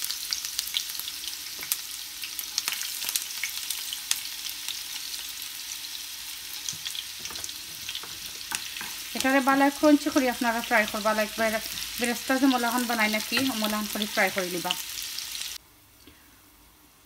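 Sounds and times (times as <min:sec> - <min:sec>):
onion sizzling in frying pan: 0:00.0 - 0:15.6.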